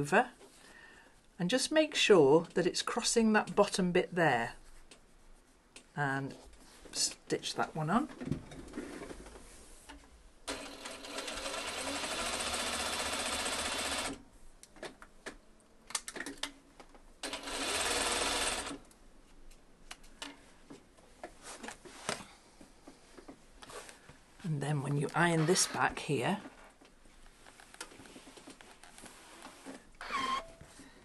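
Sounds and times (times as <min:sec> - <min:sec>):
sewing machine stitching: 0:10.5 - 0:14.2, 0:17.2 - 0:18.8.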